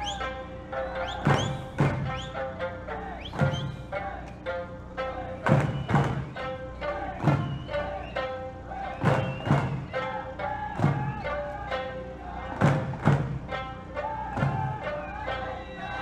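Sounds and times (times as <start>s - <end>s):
folk song with long held notes: 0.0s - 16.0s
heavy drum beats: 1.2s - 2.3s, 3.3s - 3.9s, 5.4s - 8.0s, 8.8s - 11.7s, 12.4s - 15.1s
plucked lute accompaniment: 9.9s - 16.0s.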